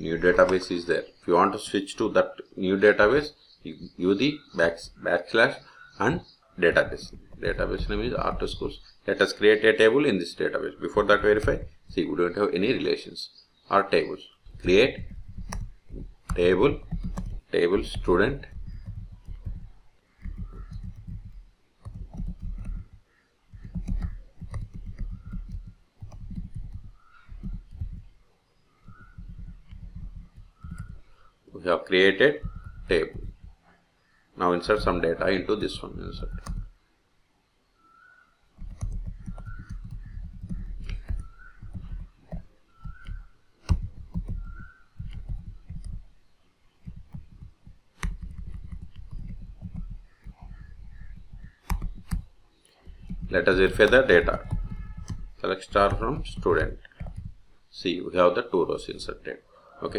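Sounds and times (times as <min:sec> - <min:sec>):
keyboard typing clicks: 0:14.5 - 0:28.1, 0:28.9 - 0:31.2, 0:32.4 - 0:33.6, 0:36.2 - 0:36.7, 0:38.6 - 0:46.1, 0:46.8 - 0:57.4.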